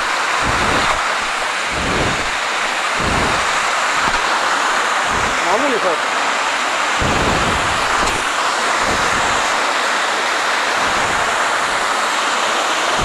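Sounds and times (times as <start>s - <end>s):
wind buffeting microphone: 0.0s - 4.2s, 7.0s - 8.2s
waterfall rushing over rocks: 0.0s - 13.0s.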